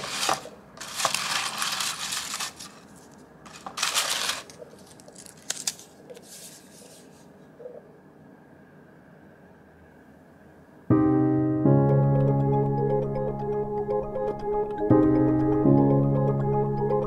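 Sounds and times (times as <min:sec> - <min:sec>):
paper slips rustling: 0:00.0 - 0:07.1
paper crinkling: 0:00.0 - 0:07.2.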